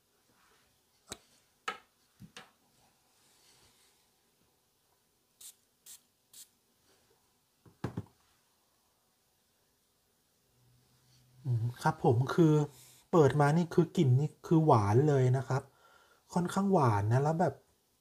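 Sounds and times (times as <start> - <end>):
perfume atomizer spraying: 5.4 - 6.6.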